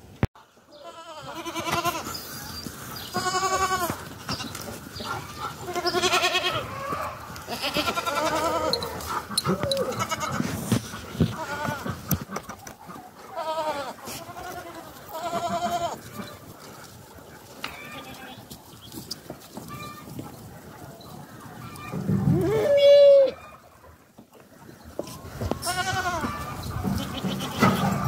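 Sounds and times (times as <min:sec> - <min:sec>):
goats bleating: 0:00.7 - 0:02.2, 0:03.1 - 0:04.7, 0:05.4 - 0:12.1, 0:13.3 - 0:16.4, 0:17.6 - 0:18.5, 0:25.4 - 0:28.0.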